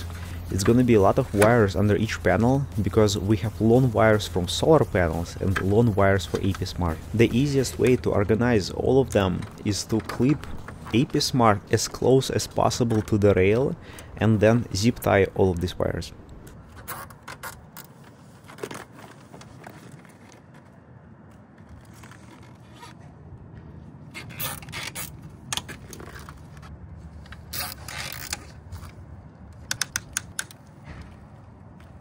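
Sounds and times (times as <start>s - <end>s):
cables scraping against metal rail: 24.1s - 29.0s
cable ties ratcheting: 27.3s - 30.7s
sharp clicks: 29.5s - 30.8s.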